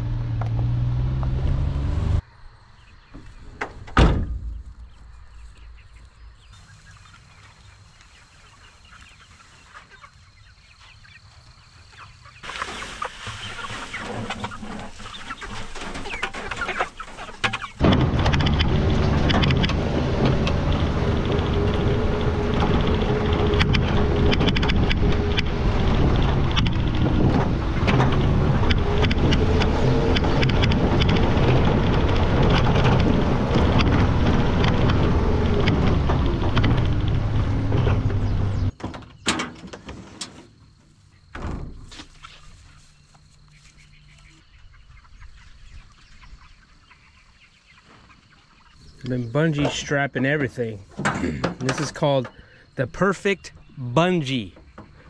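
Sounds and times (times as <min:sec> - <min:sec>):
truck engine rumbling: 0:00.0 - 0:02.2, 0:12.4 - 0:38.8
rattles and bumps: 0:12.5 - 0:40.6.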